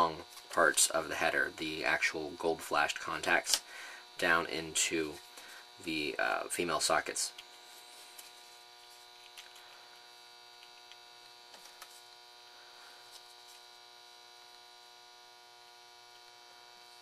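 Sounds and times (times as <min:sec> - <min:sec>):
faint electrical hum: 0:00.0 - 0:17.0.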